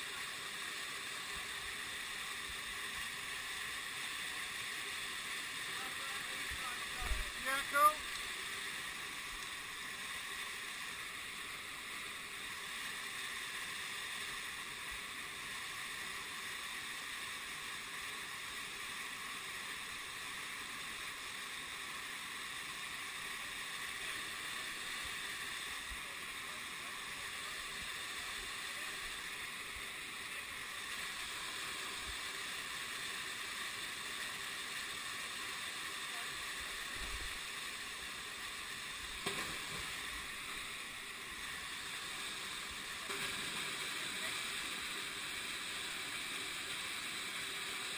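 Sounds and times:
waterfall rushing: 1.0 - 18.8.

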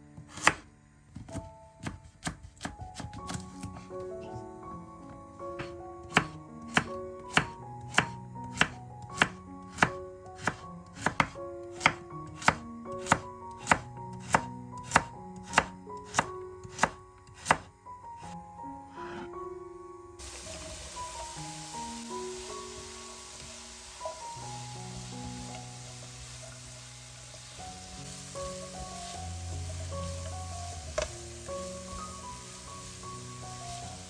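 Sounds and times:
quiet background music: 0.0 - 34.0
knife chopping on cutting board: 0.2 - 0.6, 1.2 - 3.8, 5.6 - 18.3.

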